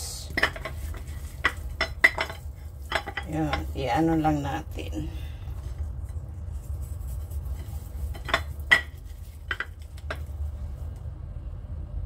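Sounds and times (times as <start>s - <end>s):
clinks against ceramic dish: 1.4s - 3.7s
hands rubbing seasoning into meat: 5.9s - 10.0s.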